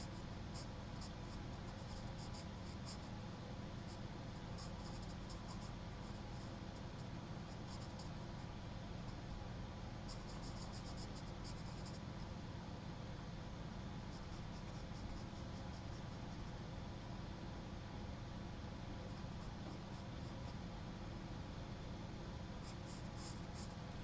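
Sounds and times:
room hum and hiss: 0.0 - 24.0
pencil scratching on paper: 0.5 - 3.1, 3.9 - 6.3.

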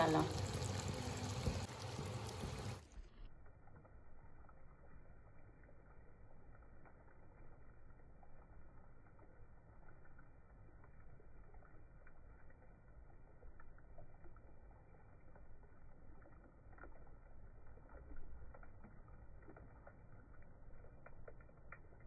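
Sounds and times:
paste poured into pan: 0.0 - 3.0
chicken sizzling in oil: 0.0 - 22.0.

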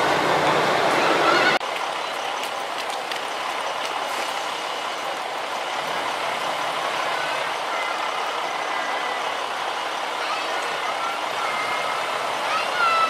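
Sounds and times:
diesel railcar engine running: 0.0 - 13.0.

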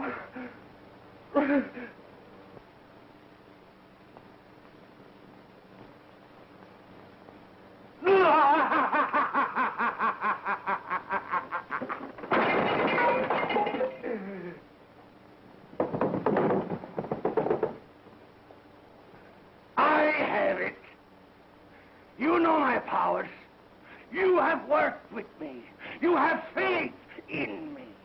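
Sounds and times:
film soundtrack hiss: 0.0 - 28.0
man laughing hard: 8.0 - 12.2.

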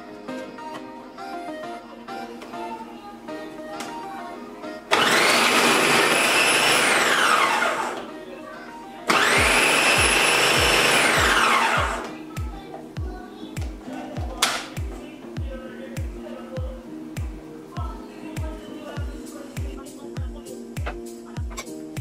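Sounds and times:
food processor motor whining: 4.9 - 8.1, 9.1 - 12.1.

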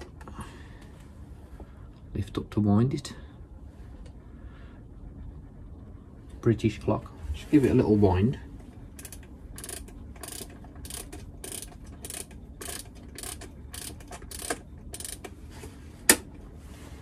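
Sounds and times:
clock winding ratchet clicks: 9.0 - 15.3.

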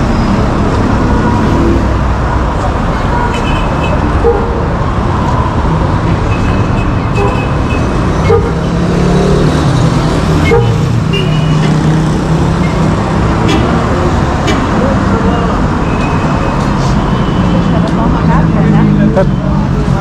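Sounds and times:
vehicle engines running: 0.0 - 20.0
car horn toots: 10.4 - 11.7.

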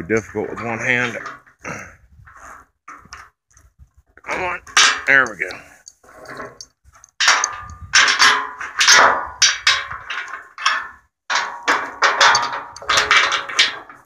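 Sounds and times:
steel chain clanking: 4.3 - 14.0.

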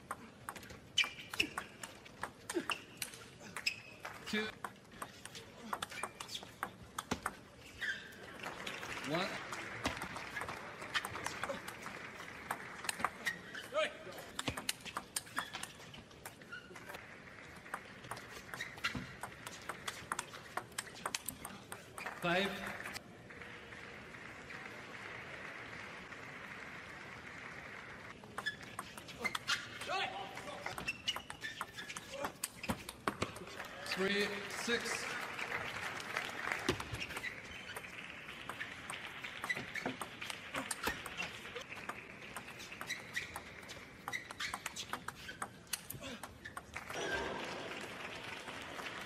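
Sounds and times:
audience applauding: 8.3 - 13.2, 23.3 - 28.2, 33.5 - 39.5, 46.9 - 49.0
table tennis ball clicking: 14.3 - 16.4, 17.6 - 22.3, 30.6 - 33.5, 36.7 - 46.9.

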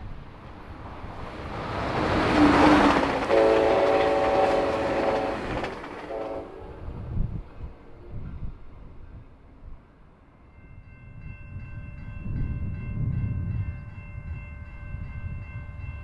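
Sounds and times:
train rumbling past: 0.0 - 16.0
train air horn blasts: 2.9 - 6.7.

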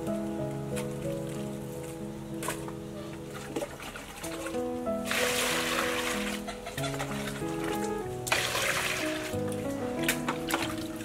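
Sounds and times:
background music: 0.0 - 11.0
water splashing in steel basin: 3.3 - 11.0.

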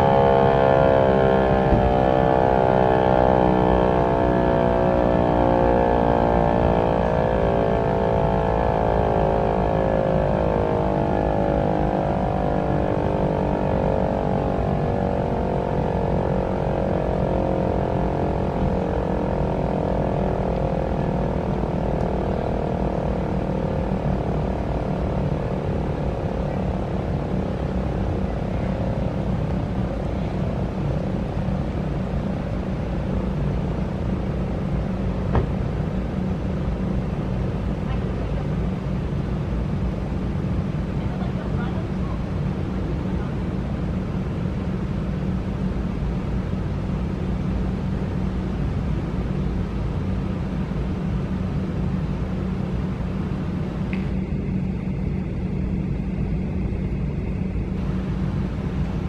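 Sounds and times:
warning siren winding down: 0.0 - 34.7
steady low rumble: 0.0 - 59.0.

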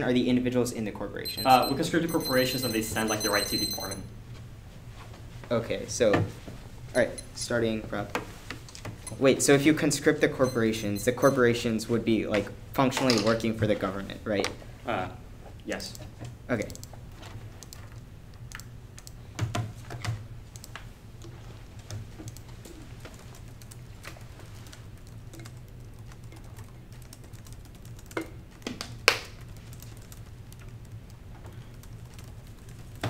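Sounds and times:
laptop keyboard typing: 1.3 - 4.0, 16.6 - 33.0.

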